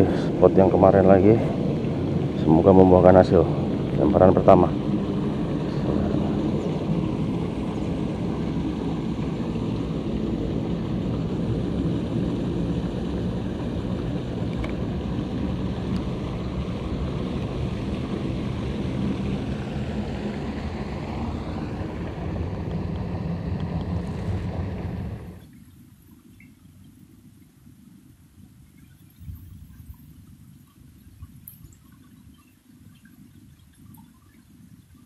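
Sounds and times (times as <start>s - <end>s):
low rumbling noise: 0.0s - 26.1s.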